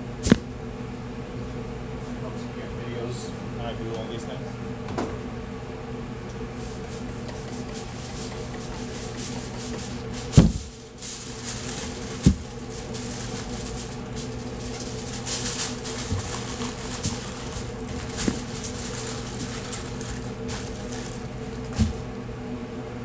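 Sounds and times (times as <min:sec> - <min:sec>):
steady low hum: 0:00.0 - 0:23.0
aluminium foil crinkling: 0:07.6 - 0:22.0.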